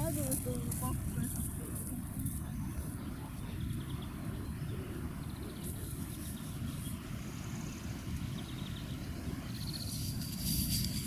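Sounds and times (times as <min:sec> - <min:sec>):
low outdoor rumble: 0:00.0 - 0:11.0
small birds trilling: 0:00.0 - 0:11.0.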